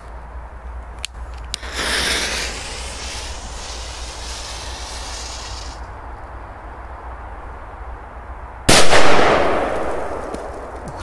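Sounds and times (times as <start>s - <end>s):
firecracker fuse hissing: 1.6s - 5.9s.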